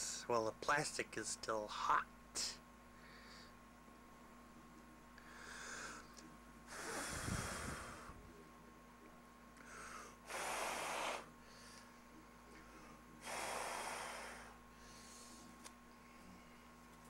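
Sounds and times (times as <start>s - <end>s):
man breathing through nose: 3.0s - 3.6s, 5.2s - 8.2s, 9.6s - 11.9s, 12.6s - 15.6s.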